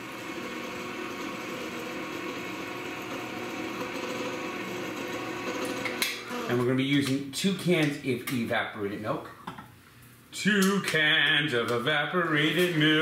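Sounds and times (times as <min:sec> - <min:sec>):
electric can opener motor: 0:00.0 - 0:06.6.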